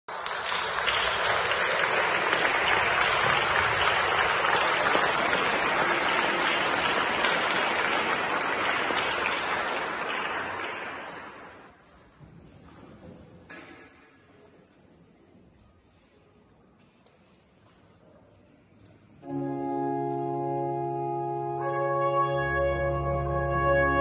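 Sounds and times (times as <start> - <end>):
audience applauding: 0.0 - 11.7.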